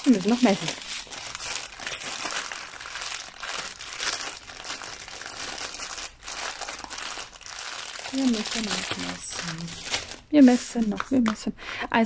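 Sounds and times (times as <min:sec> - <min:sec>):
plastic film crinkling: 0:00.0 - 0:11.5.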